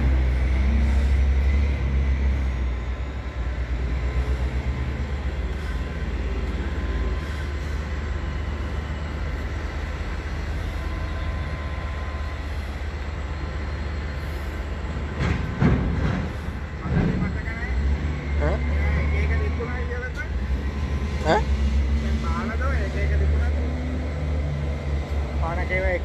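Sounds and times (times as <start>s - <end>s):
freight train rumble: 0.0s - 26.0s
low engine drone: 0.0s - 26.0s.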